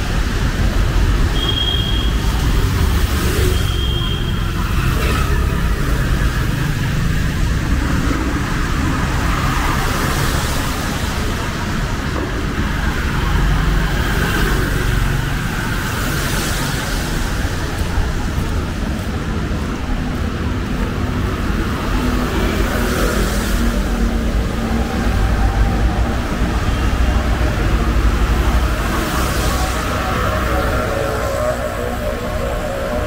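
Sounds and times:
tyres hissing on wet road: 0:00.0 - 0:33.0
vehicle engines rumbling: 0:00.0 - 0:33.0.

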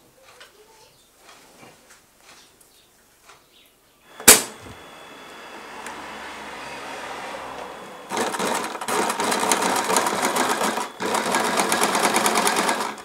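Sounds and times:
low hum: 0:04.1 - 0:11.1
sharp loud click: 0:04.2 - 0:04.8.

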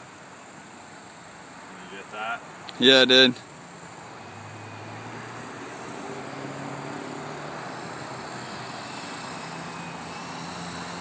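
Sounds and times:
rc helicopter rotor humming: 0:00.0 - 0:11.0.

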